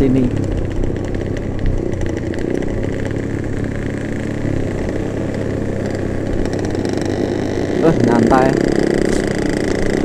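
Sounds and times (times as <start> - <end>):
motorcycle engines cruising: 0.0 - 10.0.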